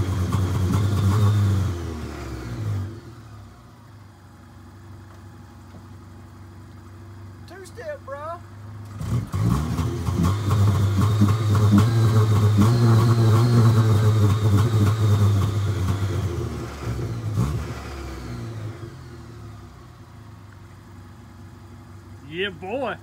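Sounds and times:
car engine revving: 0.0 - 4.0, 8.7 - 23.0
exhaust popping and crackling: 4.9 - 18.9.

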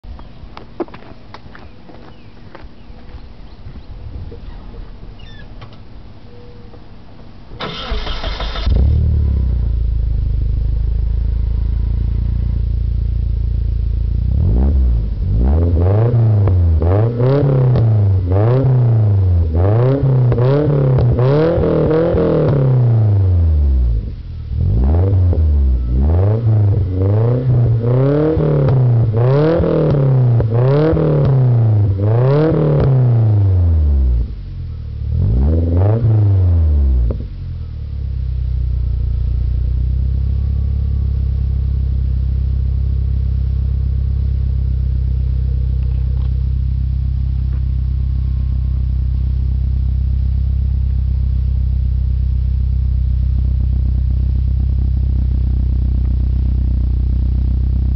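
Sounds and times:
car engine revving and idling: 7.6 - 57.9.

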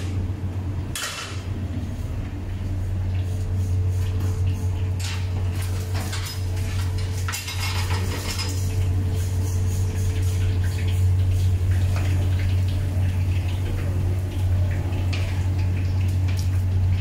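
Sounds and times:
steady low hum: 0.0 - 17.0
metal utensils clinking on pot: 5.9 - 8.6.

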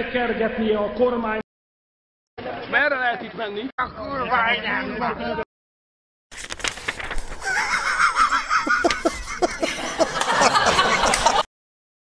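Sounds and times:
paper rustling: 6.3 - 7.9
man laughing heartily: 7.4 - 11.5.

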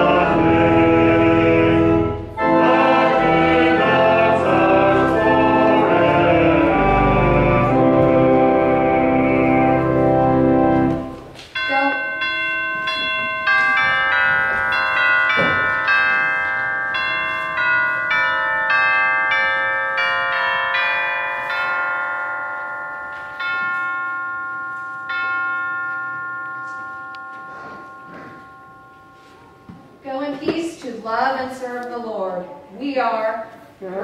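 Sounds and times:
bell-like struck melody: 11.1 - 30.1.

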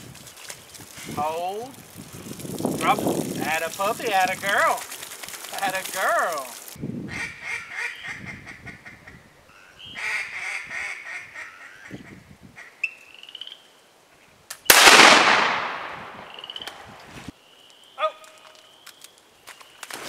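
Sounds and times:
duck call quacks: 7.1 - 9.2, 10.0 - 11.9
shotgun shot: 14.7 - 16.6.

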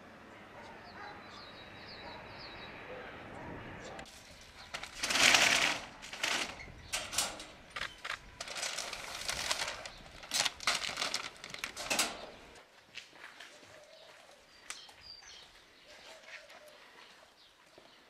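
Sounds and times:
plastic bags rustling: 4.1 - 12.6.

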